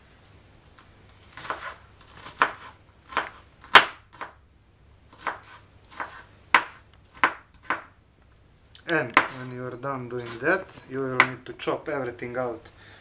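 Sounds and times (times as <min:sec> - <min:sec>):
knife chopping on wooden board: 0:01.4 - 0:04.4, 0:05.1 - 0:07.9, 0:09.1 - 0:09.5, 0:11.2 - 0:11.4.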